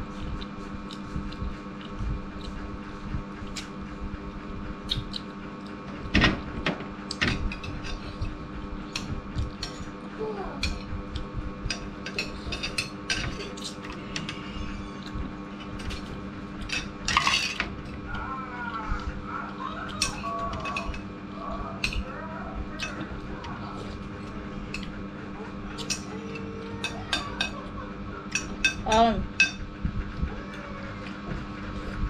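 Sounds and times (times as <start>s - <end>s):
steady hum: 0.0s - 32.0s
cutlery clatter: 11.8s - 14.4s, 15.8s - 18.0s, 20.0s - 21.0s
cutlery clinking on dishes: 20.0s - 21.0s.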